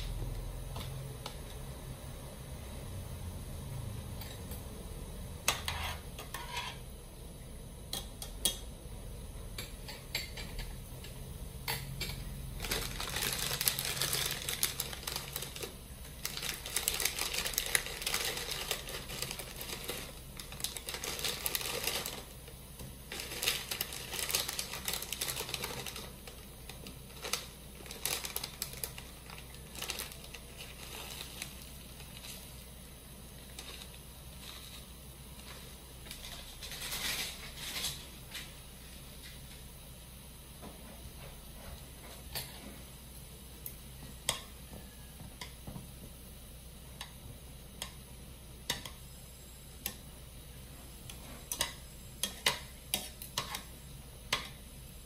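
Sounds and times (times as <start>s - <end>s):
plastic packet crinkling: 12.6s - 22.4s, 23.1s - 32.4s.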